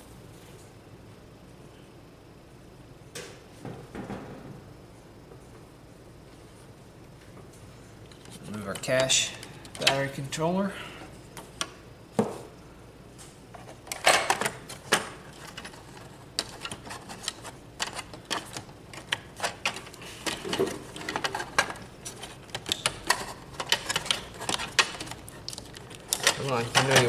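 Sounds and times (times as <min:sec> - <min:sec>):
plastic and metal parts clicking: 0:16.4 - 0:27.0.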